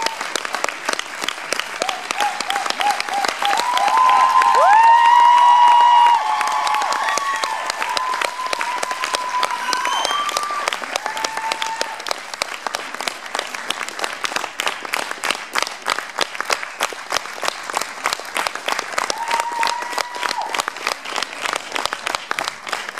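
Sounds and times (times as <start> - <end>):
audience applauding: 0.0 - 22.9
high voices cheering: 1.8 - 12.1, 19.1 - 20.6.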